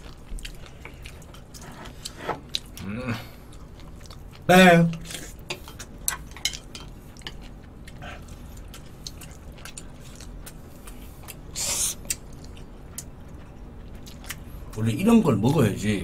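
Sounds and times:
person chewing and biting meat: 7.1s - 14.5s.

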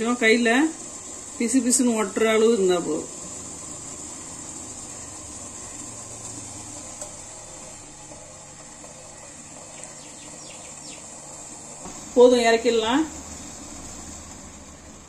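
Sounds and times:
syrup bubbling in a pot: 0.2s - 11.8s.

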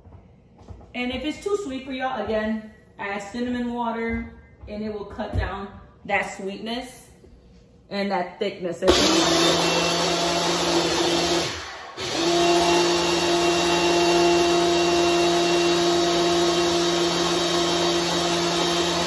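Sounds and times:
blender motor humming: 8.9s - 19.0s.

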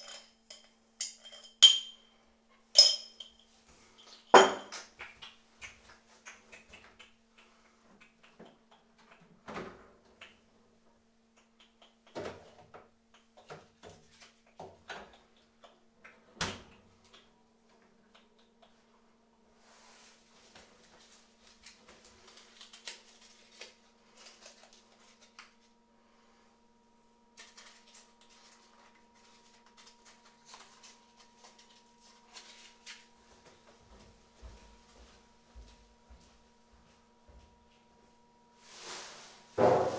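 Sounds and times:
faint steady hum: 0.0s - 39.9s
kitchen knocks: 39.6s - 39.9s.

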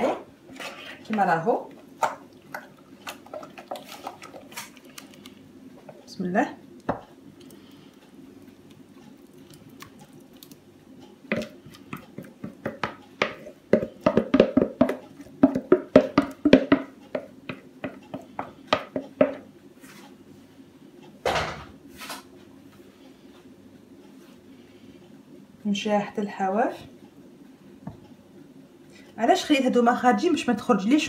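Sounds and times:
wooden spoon scraping plastic bowl: 0.0s - 1.3s.

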